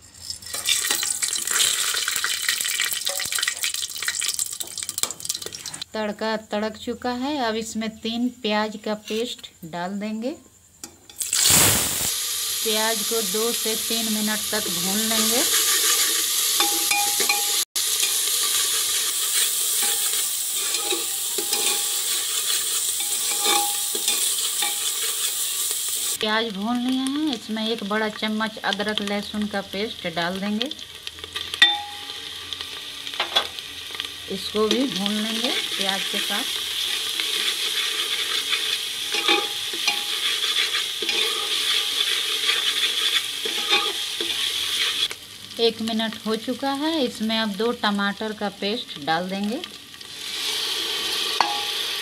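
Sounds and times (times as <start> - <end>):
paste sizzling in hot oil: 0.0 - 5.9, 10.8 - 52.0
metal spoon scraping pot: 15.2 - 25.7, 36.8 - 45.1.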